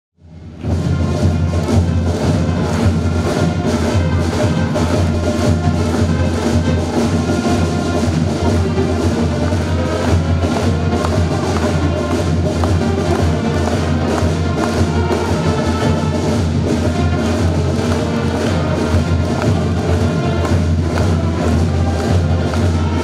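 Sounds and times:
pep band playing brass and drums: 0.2s - 23.0s.

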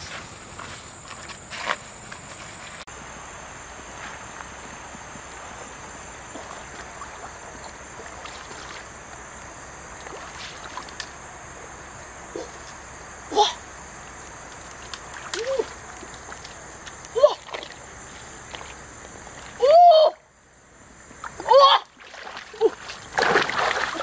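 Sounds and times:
water sloshing as person wades: 5.1s - 11.0s, 14.6s - 19.6s, 21.2s - 24.0s.

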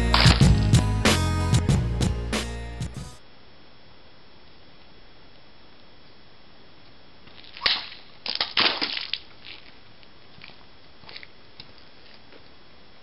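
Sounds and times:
bottle and water splattering on pavement: 7.3s - 9.7s.

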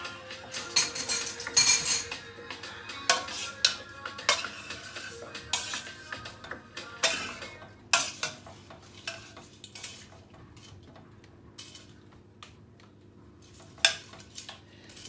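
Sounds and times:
metal spoon clinking on pot: 0.6s - 2.2s, 3.1s - 4.7s.

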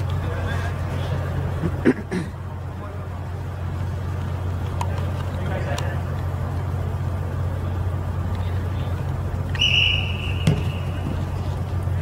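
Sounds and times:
steady low hum: 0.0s - 12.0s
referee's whistle blast: 9.5s - 11.0s
football being kicked: 10.4s - 11.2s.

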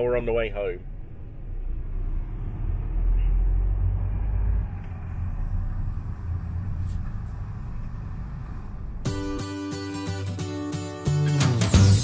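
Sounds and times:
van engine and road rumble: 0.0s - 12.0s.

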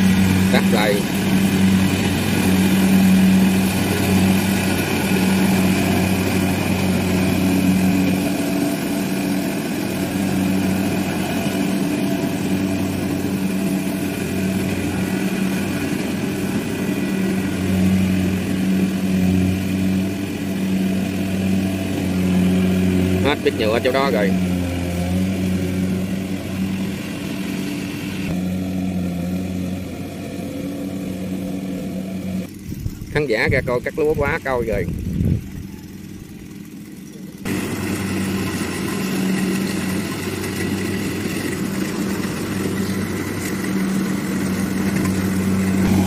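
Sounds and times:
combine harvester diesel engine: 0.0s - 46.0s.

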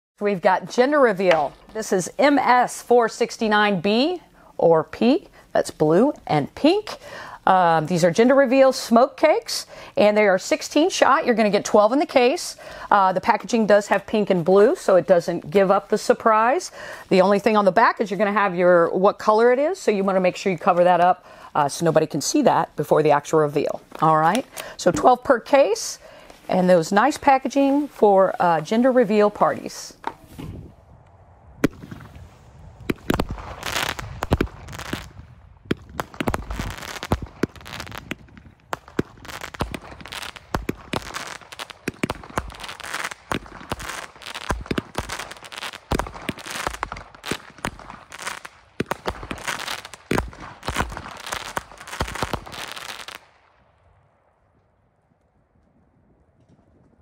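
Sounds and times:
firework crackling: 31.2s - 53.4s
firework cake firing sharp shots: 32.8s - 53.3s.

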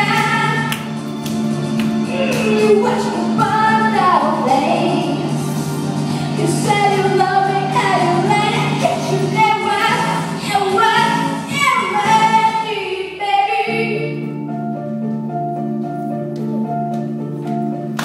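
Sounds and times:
instrumental accompaniment: 0.0s - 12.6s, 13.8s - 18.0s
woman singing into a microphone: 2.1s - 5.2s, 6.4s - 14.3s.

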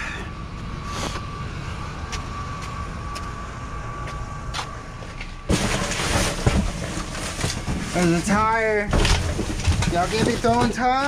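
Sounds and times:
loud rustling clatter: 5.5s - 11.0s.

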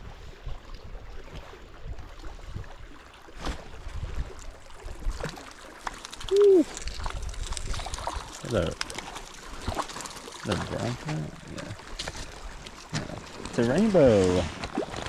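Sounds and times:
wind rumbling on microphone: 0.0s - 3.0s, 3.6s - 5.3s, 6.2s - 8.8s
creek running over gravel: 0.5s - 15.0s.

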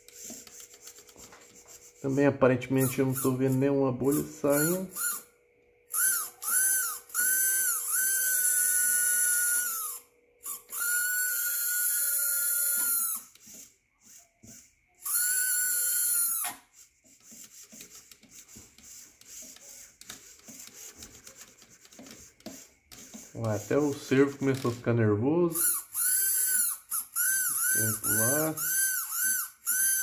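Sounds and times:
electric motor whining: 2.8s - 5.3s, 5.9s - 16.6s, 25.5s - 30.0s.

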